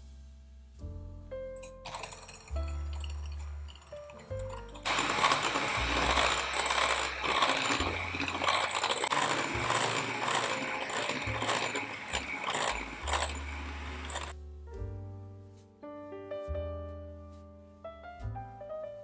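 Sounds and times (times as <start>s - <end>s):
beaters rattling against glass bowl: 1.8s - 14.3s
electric hand mixer running: 1.9s - 14.4s.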